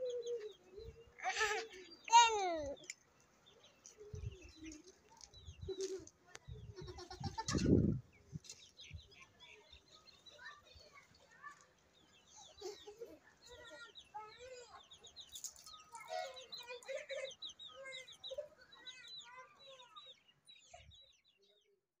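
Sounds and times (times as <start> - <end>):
birds clucking: 0.0 - 10.9
birds chirping: 0.0 - 21.8.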